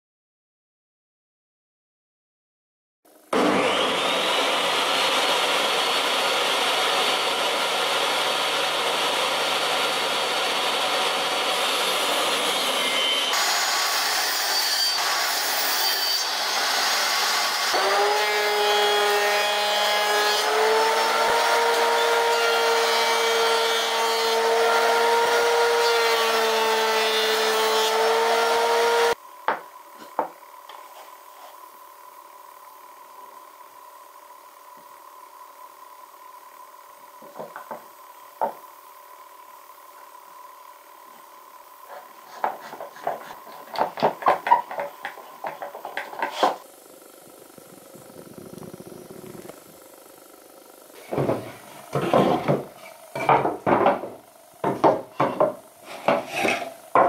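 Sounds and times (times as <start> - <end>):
table saw cutting boards: 3.3 - 31.7, 41.0 - 49.7, 50.9 - 57.0
boards knocking: 37.2 - 37.8, 42.4 - 46.6, 51.0 - 57.0.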